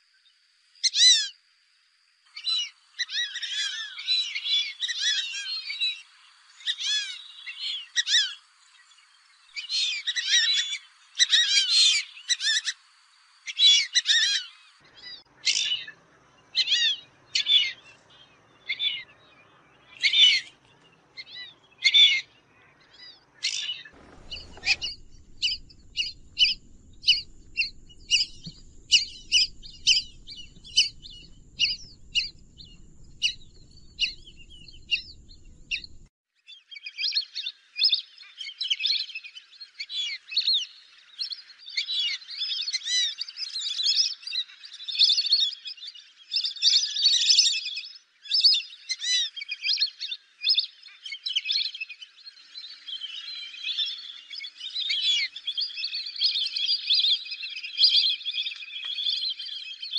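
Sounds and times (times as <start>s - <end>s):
ducks whistling calls: 21.2s - 36.1s.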